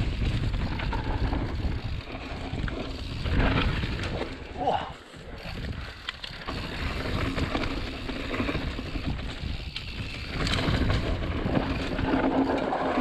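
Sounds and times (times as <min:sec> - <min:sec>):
wind on microphone: 0:00.0 - 0:04.5
bike clicks and rattles: 0:00.0 - 0:13.0
bike tyres rumbling over dirt: 0:00.0 - 0:13.0.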